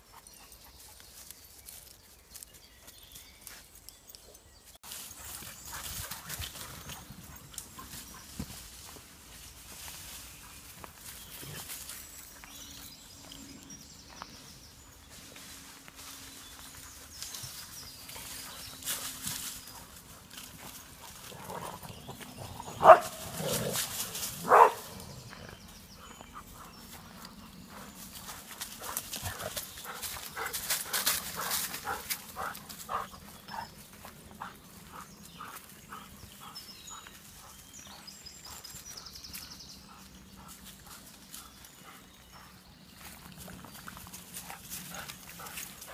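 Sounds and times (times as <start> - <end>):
footsteps on dry leaves: 4.8 - 25.0
dog barking: 22.8 - 23.2, 24.4 - 24.9.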